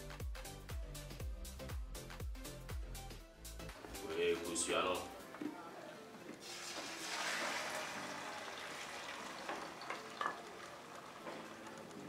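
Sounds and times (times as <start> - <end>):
eggs sizzling in hot oil: 6.4 - 12.0.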